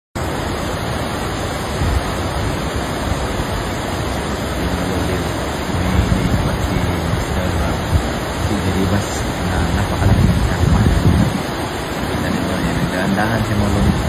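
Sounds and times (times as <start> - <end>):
river flowing over rocks: 0.2 - 14.0.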